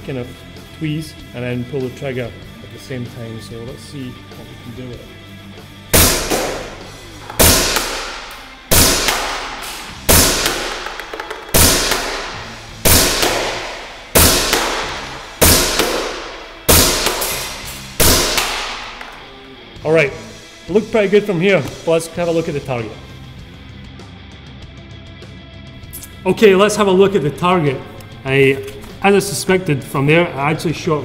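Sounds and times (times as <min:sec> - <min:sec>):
airsoft pistol shots: 0:05.9 - 0:19.2.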